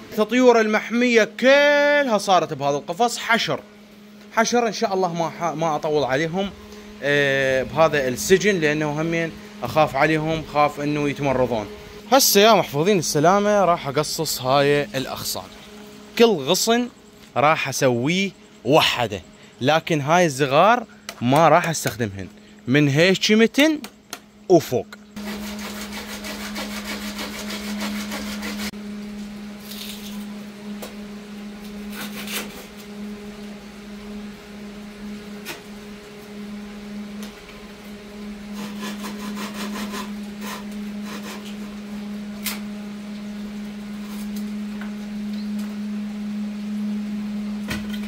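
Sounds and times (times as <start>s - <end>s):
steady low hum: 0.0s - 48.0s
hand saw cutting branches: 25.2s - 28.7s, 31.9s - 32.8s, 38.5s - 41.6s.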